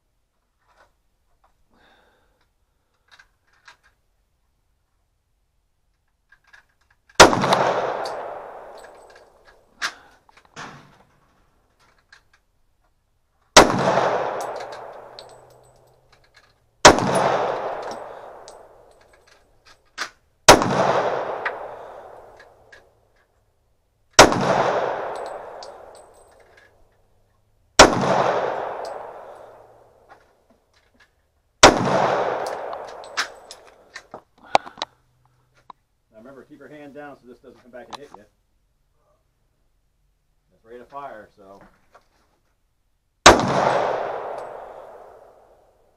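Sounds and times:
pistol shots with echo: 7.2 - 9.0, 13.6 - 15.4, 16.8 - 18.9, 20.5 - 22.4, 24.2 - 26.0, 27.8 - 29.9, 31.6 - 33.6, 43.2 - 45.6
brass casings clinking: 7.2 - 9.7, 13.9 - 19.9, 24.2 - 27.3, 28.1 - 30.1, 32.0 - 34.0.

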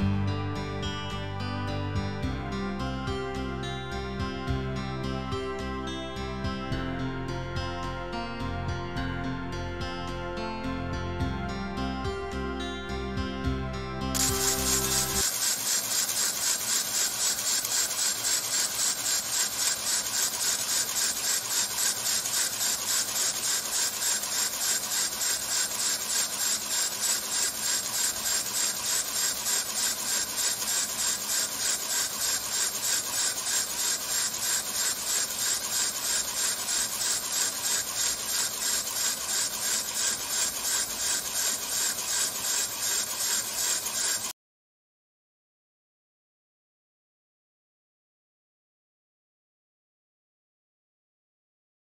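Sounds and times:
rhythmic air exhaust hissing: 14.2 - 44.3.

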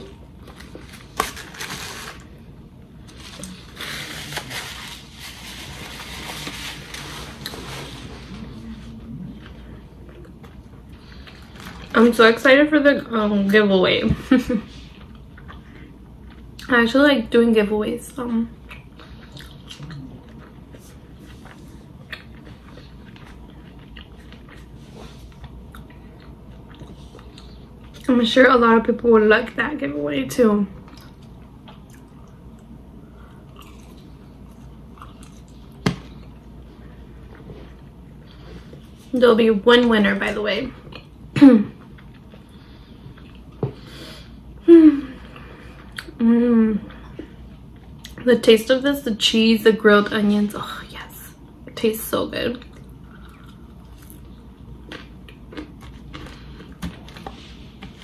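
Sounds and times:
paper napkin crinkling: 0.5 - 2.3, 3.0 - 8.6
person chewing soft food: 14.9 - 16.7, 18.6 - 28.1, 30.8 - 39.0, 41.8 - 43.9, 52.7 - 58.0.

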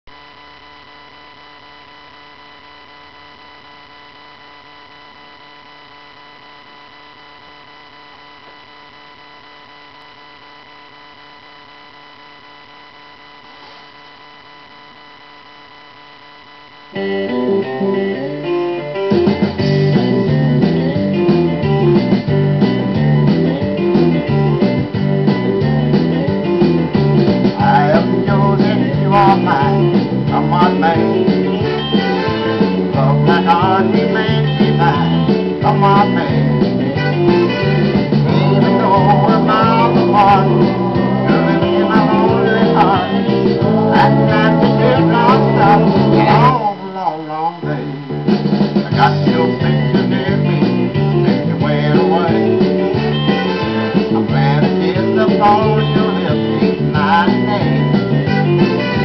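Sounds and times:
faint steady hum: 0.1 - 59.0
bass: 16.9 - 46.7, 47.6 - 59.0
guitar-led music: 16.9 - 46.8, 47.6 - 59.0.

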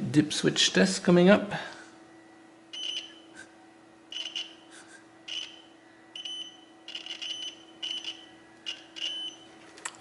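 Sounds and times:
multimeter continuity beeps: 2.7 - 3.5, 4.1 - 9.6.

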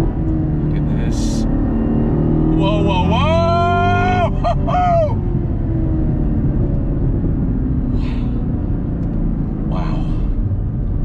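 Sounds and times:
car engine from inside cabin: 0.0 - 11.0
road noise: 0.0 - 11.0
man whooping yell: 2.6 - 5.2.

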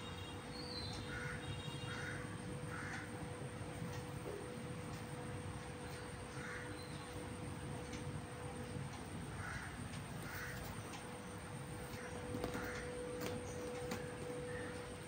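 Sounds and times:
steady low hum: 0.0 - 15.0
bird calling: 9.3 - 11.2, 11.8 - 15.0.

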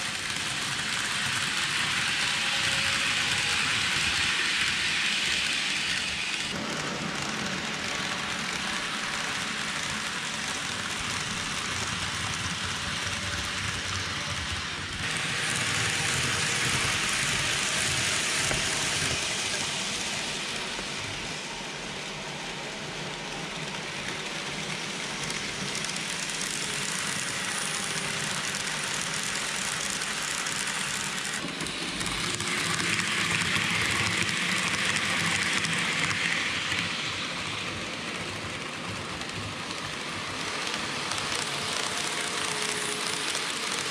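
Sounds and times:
model train wheels rattling: 23.7 - 43.9.

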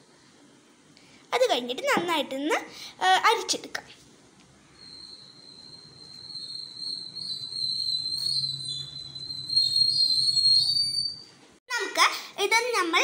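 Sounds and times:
high-pitched whistle: 4.7 - 11.3.

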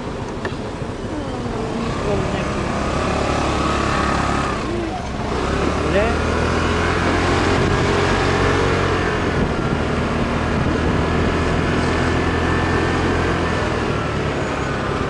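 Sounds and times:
road noise: 0.0 - 15.0
wind noise: 6.8 - 13.7.

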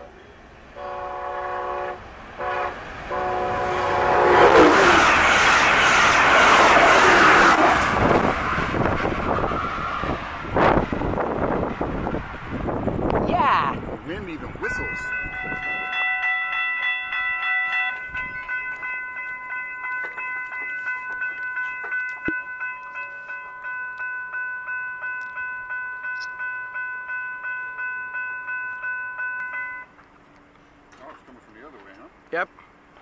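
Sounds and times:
railroad crossing bells ringing: 14.0 - 30.1.

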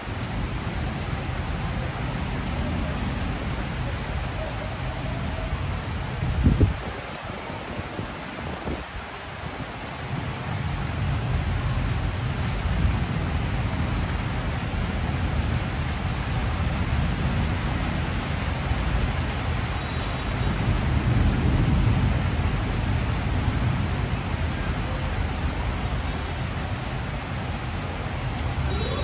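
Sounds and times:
heavy rain on metal roof: 0.0 - 29.0
distant thunder rumble: 18.9 - 26.9.

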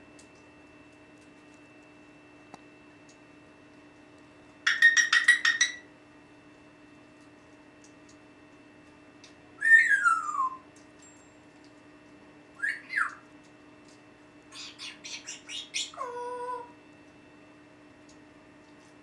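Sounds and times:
parrot raspy chirps: 4.7 - 5.8, 12.6 - 13.2, 14.5 - 16.7
parrot whistling: 4.7 - 5.8, 9.6 - 10.7, 12.6 - 13.2, 14.5 - 16.6.

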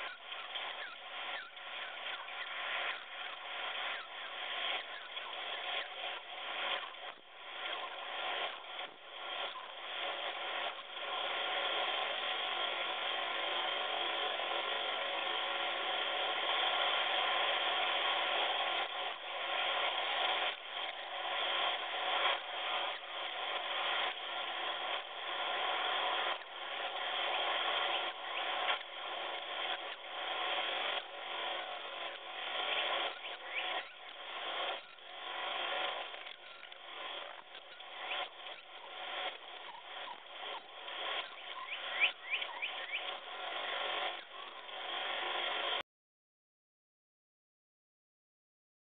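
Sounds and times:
nestlings begging chatter: 0.0 - 6.8, 16.6 - 44.6.

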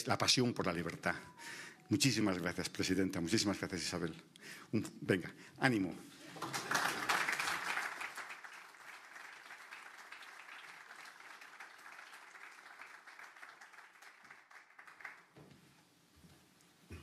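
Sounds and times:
audience applause: 6.2 - 15.4.

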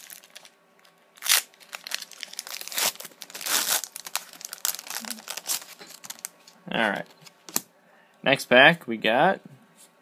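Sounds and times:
foil wrapper crinkling: 0.0 - 7.0.

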